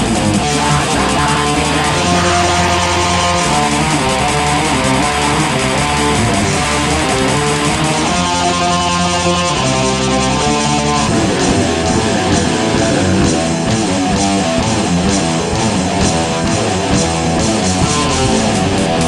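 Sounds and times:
bass and drums: 0:00.0 - 0:19.0
distorted electric guitar: 0:00.0 - 0:19.0
cymbal strikes: 0:00.6 - 0:09.1.

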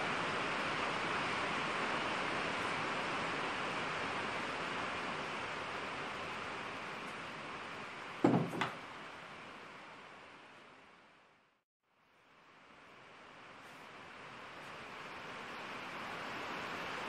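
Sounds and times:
steady hiss: 0:00.0 - 0:11.3, 0:12.0 - 0:17.0
cylinder head knocking on workbench: 0:08.2 - 0:08.8.

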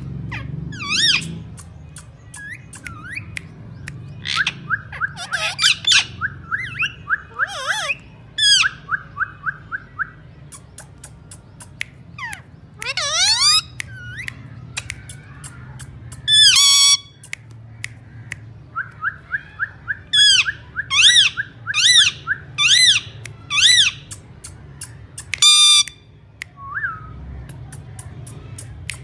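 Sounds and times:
harsh parakeet calls: 0:00.0 - 0:26.1
sharp clicks: 0:01.2 - 0:04.8, 0:10.5 - 0:16.3, 0:17.1 - 0:19.1, 0:23.2 - 0:26.6, 0:27.4 - 0:29.0
parakeet whistling: 0:04.2 - 0:10.2, 0:11.0 - 0:14.3.

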